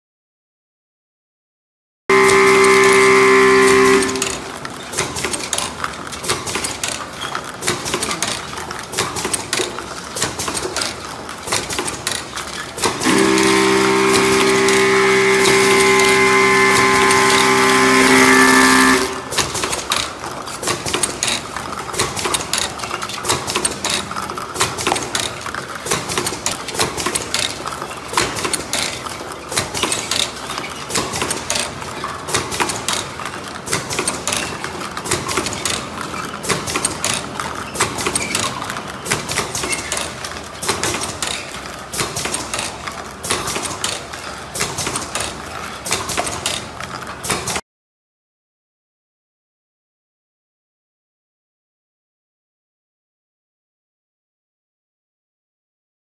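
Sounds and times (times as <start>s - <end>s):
steady held tones: 2.1s - 4.5s
capping machine clattering: 2.1s - 47.6s.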